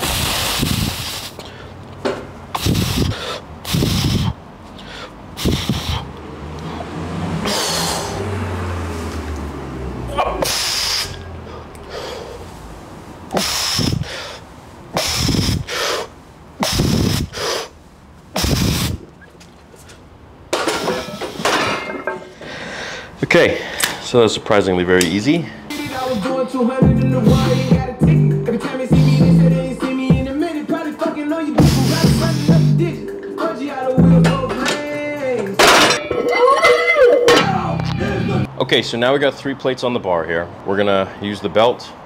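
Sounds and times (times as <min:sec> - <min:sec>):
man breathing forcefully: 0:00.0 - 0:01.9, 0:02.5 - 0:09.0, 0:10.2 - 0:12.7, 0:13.3 - 0:19.0, 0:20.6 - 0:24.0, 0:25.4 - 0:27.9, 0:31.5 - 0:32.8.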